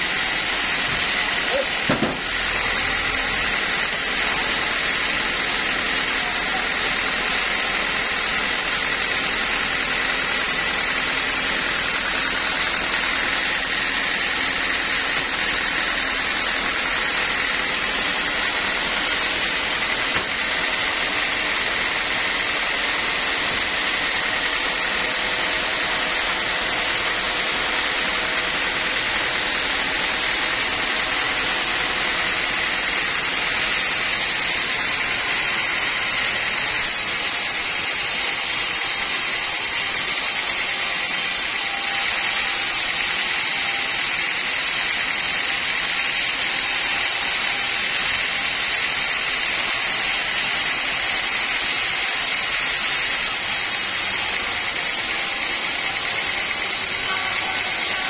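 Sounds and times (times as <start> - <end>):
sawmill whirring: 0.0 - 58.0
thin high whine: 56.0 - 58.0.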